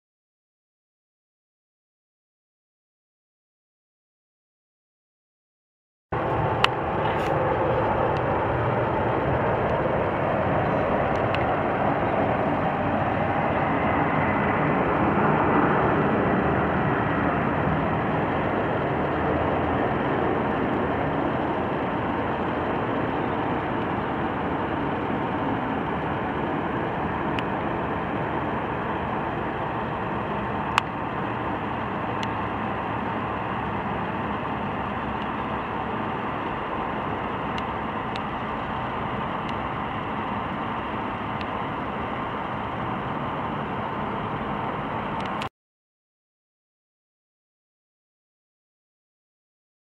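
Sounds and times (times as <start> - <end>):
jet airliner passing overhead: 6.2 - 45.5.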